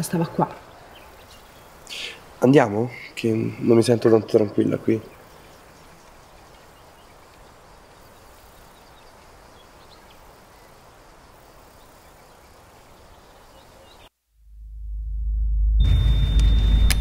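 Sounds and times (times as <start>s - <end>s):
steady hiss: 0.6s - 14.1s
low rumble: 14.4s - 17.0s.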